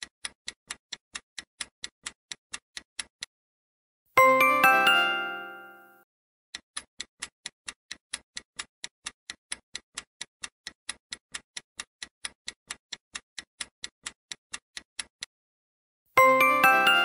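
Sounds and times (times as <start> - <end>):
clock ticking: 0.0 - 3.3, 6.5 - 15.3, 16.2 - 17.0.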